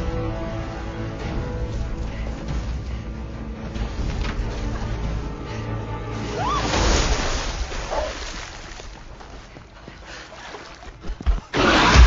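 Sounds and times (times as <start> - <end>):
tense film score drones: 0.0 - 6.7.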